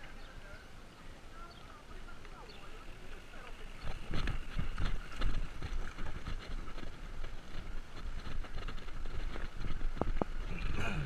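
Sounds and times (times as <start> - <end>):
wind on microphone: 2.5 - 11.0
bike rattling over cobblestones: 2.7 - 11.0.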